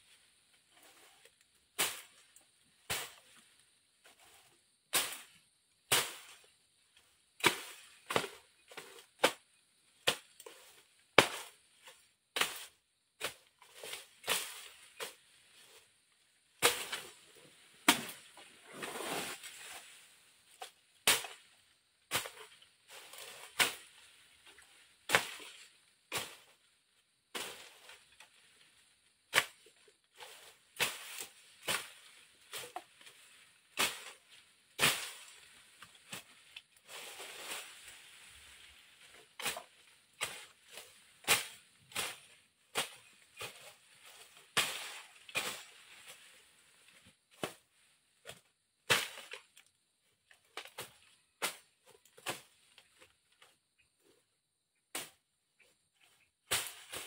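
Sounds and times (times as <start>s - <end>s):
rustling of cut vegetation: 0.0s - 57.0s
machete chopping grass: 1.8s - 2.3s, 2.9s - 3.4s, 4.9s - 6.5s, 7.4s - 15.8s, 16.6s - 20.0s, 20.6s - 21.5s, 22.1s - 26.6s, 29.3s - 47.6s, 48.2s - 49.5s, 50.4s - 53.5s, 54.9s - 55.2s, 56.0s - 57.0s.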